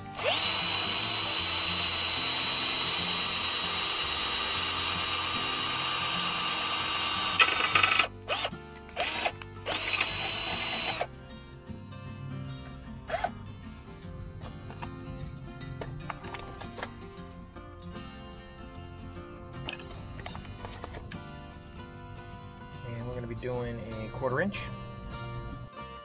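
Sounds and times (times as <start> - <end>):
cordless drill drilling sheet metal: 0.0 - 11.1, 13.1 - 13.3.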